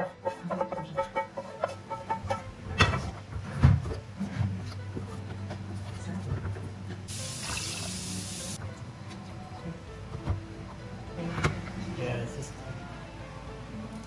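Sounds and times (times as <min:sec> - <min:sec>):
water poured with hissing splash: 0:07.1 - 0:08.6.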